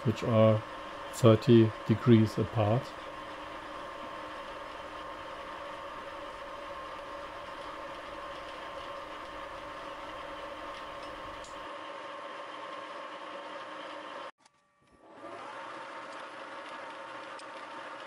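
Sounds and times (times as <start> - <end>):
milling machine humming: 0.0 - 14.3.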